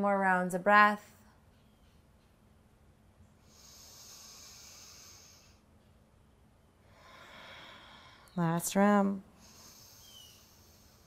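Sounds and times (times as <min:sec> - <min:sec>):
slow breathing through nose: 0:03.4 - 0:05.7, 0:06.9 - 0:08.4, 0:09.4 - 0:11.0.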